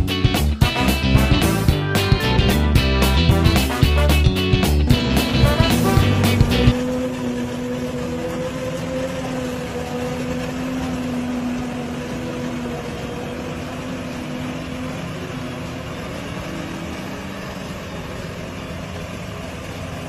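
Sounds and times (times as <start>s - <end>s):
forage harvester droning: 0.0s - 20.0s.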